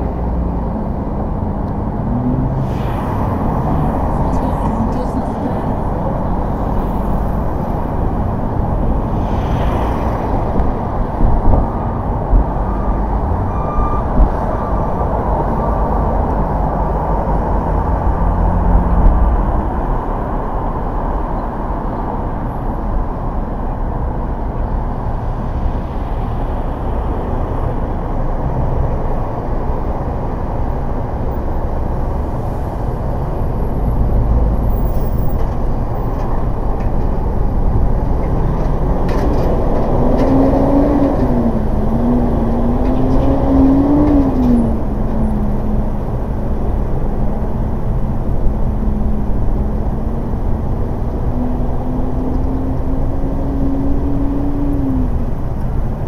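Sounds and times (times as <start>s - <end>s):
car tyre and engine noise: 0.0s - 56.0s.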